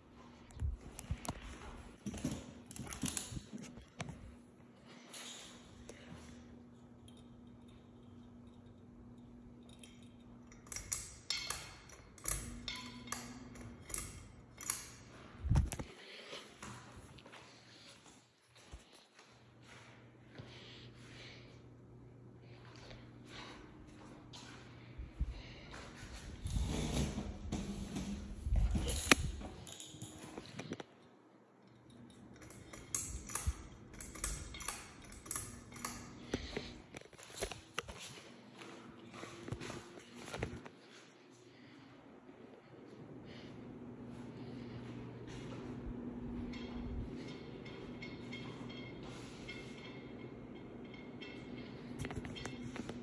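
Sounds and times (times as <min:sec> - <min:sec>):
faint low hum: 0:00.0 - 0:53.0.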